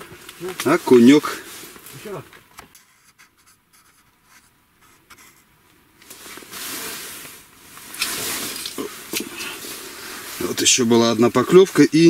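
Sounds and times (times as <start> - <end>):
clothing rustling and rubbing: 6.0 - 10.8.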